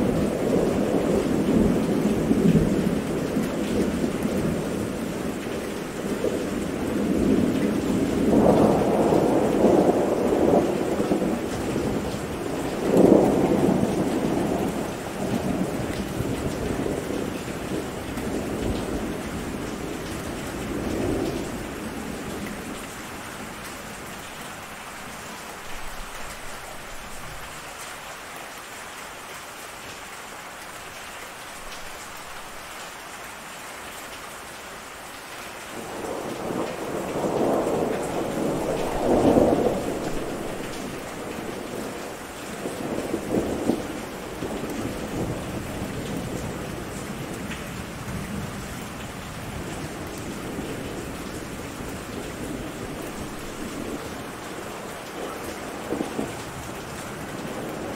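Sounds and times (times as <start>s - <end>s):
steady rain falling: 0.0s - 57.9s
thunder rumbling: 6.0s - 22.8s, 35.8s - 57.9s.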